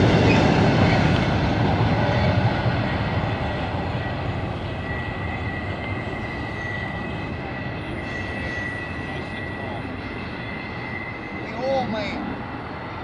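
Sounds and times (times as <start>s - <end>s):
freight train rolling past: 0.0s - 13.0s
high-pitched wheel squeal: 4.0s - 12.3s.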